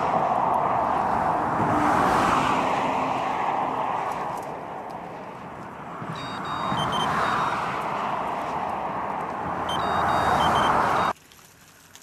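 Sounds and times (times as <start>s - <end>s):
road traffic roar: 0.0s - 11.2s
faint high-pitched beeping: 6.1s - 7.8s, 9.6s - 11.1s.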